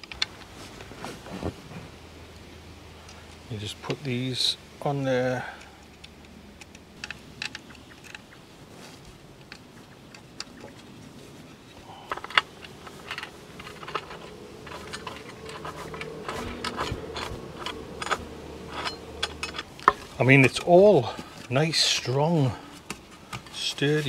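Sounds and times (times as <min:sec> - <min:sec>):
plastic parts clicking: 0:05.8 - 0:08.4, 0:12.0 - 0:20.1.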